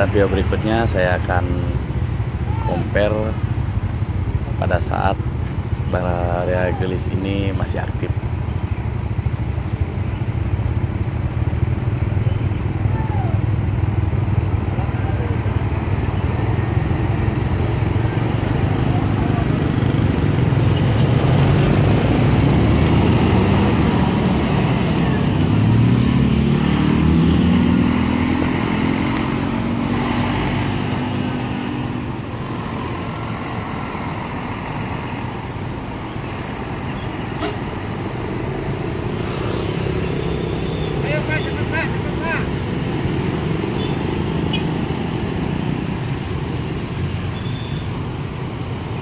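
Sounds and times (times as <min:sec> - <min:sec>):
road and tyre noise: 0:00.0 - 0:49.0
truck diesel engine passing: 0:14.0 - 0:47.2.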